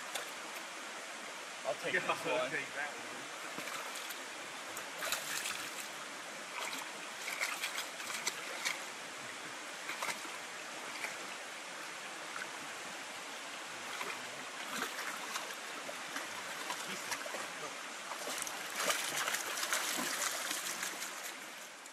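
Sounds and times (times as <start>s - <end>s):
creek water running: 0.0s - 21.9s
dog splashing through water: 6.5s - 8.8s, 13.9s - 21.4s.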